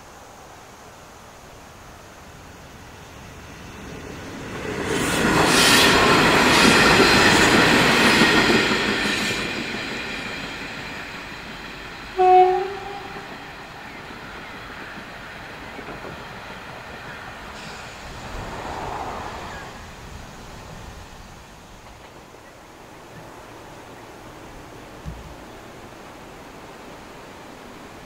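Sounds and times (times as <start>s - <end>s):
diesel railcars running on rails: 2.1s - 28.0s
train horn blast: 12.2s - 13.5s.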